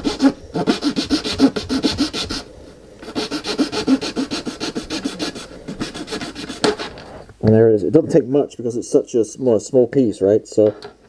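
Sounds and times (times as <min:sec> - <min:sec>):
saw cutting resin: 0:00.0 - 0:02.4, 0:03.0 - 0:07.0.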